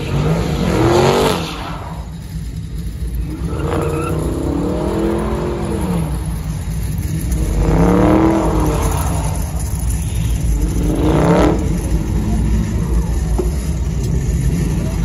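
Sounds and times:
engine revving hard: 0.0 - 2.1, 7.2 - 12.9.

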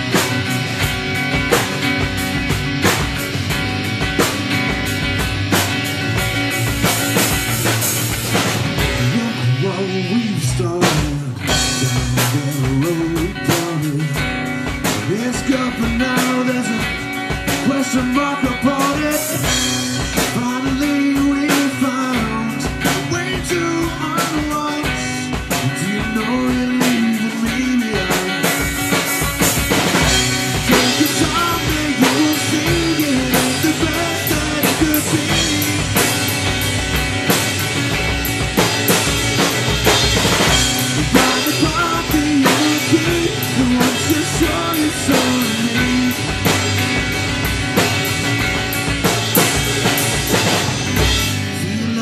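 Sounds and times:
drum kit beat: 0.0 - 52.0
rock band playing: 0.0 - 52.0
man singing: 8.8 - 29.1, 30.5 - 36.4, 40.7 - 46.8, 50.8 - 52.0.

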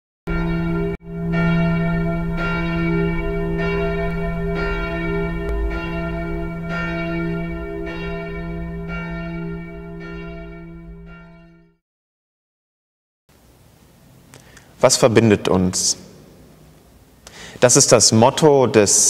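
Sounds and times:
church bells ringing: 0.3 - 11.8.

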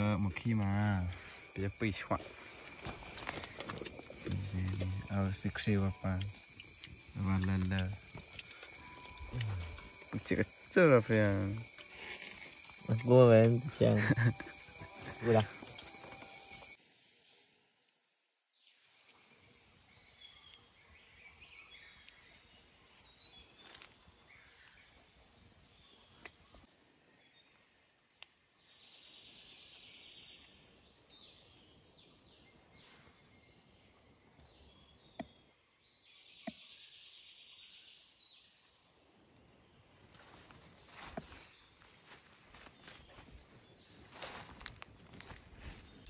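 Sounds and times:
high bird chirps: 0.0 - 16.8
forest ambience: 0.0 - 46.0.

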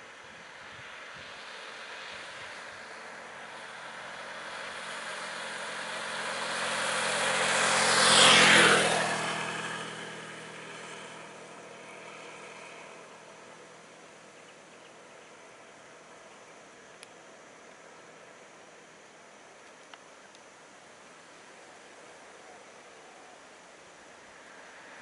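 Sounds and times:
vehicle passing by: 0.4 - 16.3.

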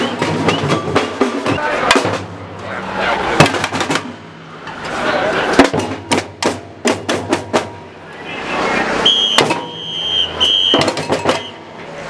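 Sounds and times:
marching drums: 0.0 - 11.8
crowd voices: 0.0 - 12.0
whistle short high blasts: 8.1 - 11.6.

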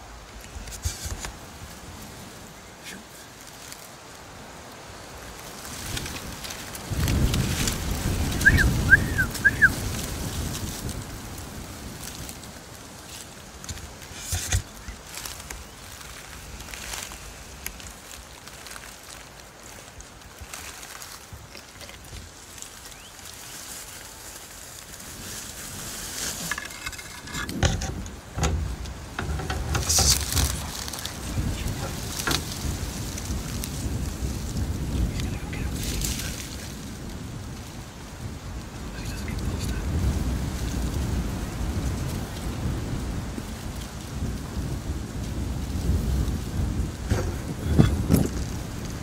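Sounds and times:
twigs rustling against camera: 0.0 - 49.0
microphone handling rumble: 5.8 - 12.5, 13.5 - 18.2, 25.0 - 37.8, 44.1 - 49.0
short high-pitched call: 8.4 - 9.8
muffled thumps: 26.2 - 32.6.

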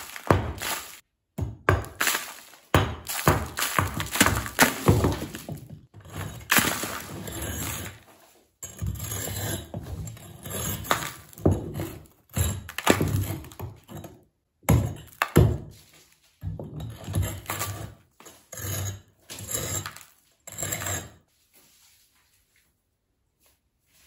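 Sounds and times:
chunks crumbling down: 0.0 - 1.0, 1.7 - 8.1
masonry knocked out of wall: 0.0 - 15.8.

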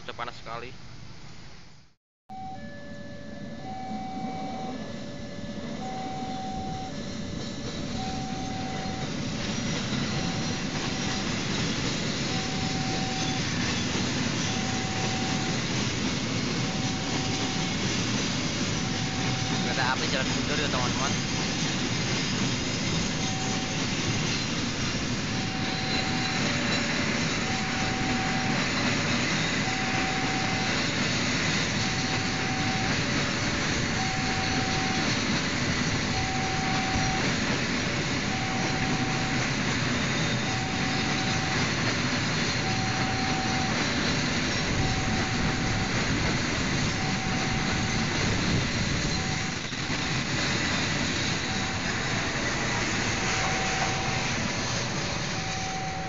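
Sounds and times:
diesel locomotive passing: 2.3 - 56.0
two-tone crossing alarm: 2.3 - 56.0
train wheels on rails: 2.8 - 56.0.

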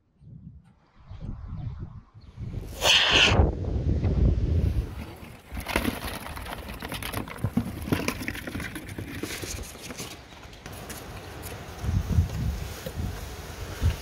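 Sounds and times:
wind rumble on microphone: 0.0 - 5.6, 11.7 - 14.0
scrapes and rustles on roof sheeting: 4.8 - 14.0.

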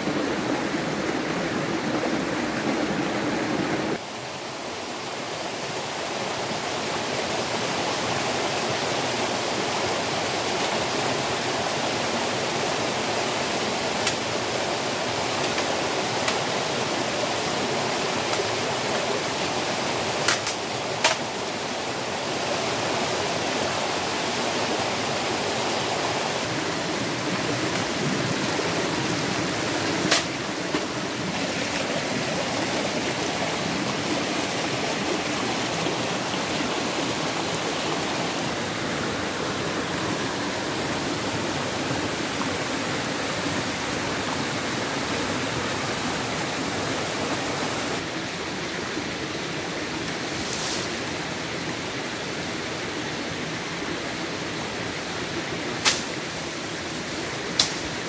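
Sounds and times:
stream rushing over rocks: 0.0 - 58.0.

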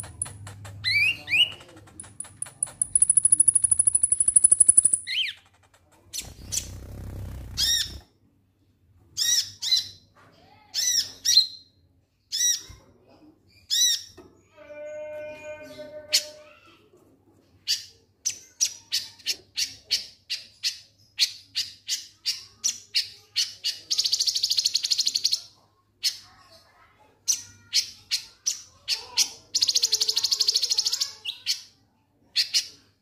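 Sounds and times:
wings rustling: 5.2 - 8.0.

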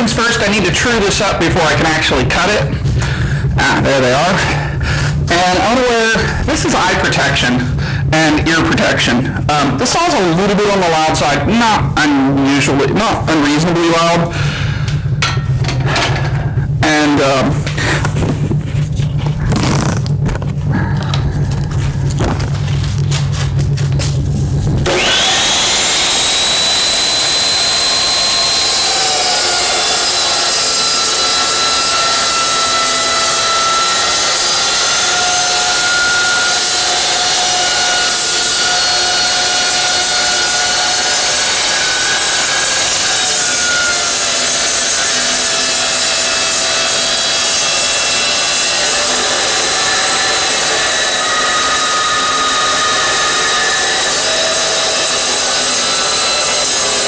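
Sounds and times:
chop saw cutting steel: 24.8 - 57.0.

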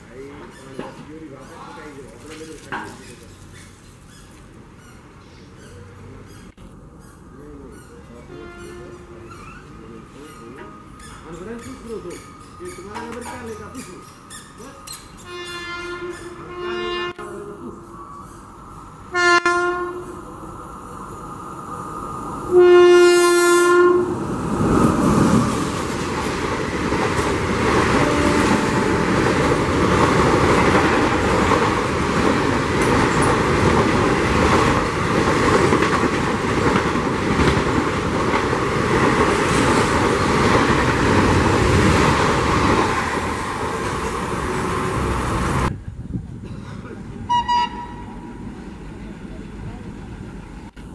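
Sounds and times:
wheels clacking over rail joints: 0.0 - 16.6, 24.1 - 45.7
train coaches rushing past: 0.0 - 50.9
locomotive horn: 8.3 - 9.2, 15.2 - 17.5, 19.1 - 20.2, 22.5 - 24.2, 27.9 - 29.6, 47.3 - 48.2.

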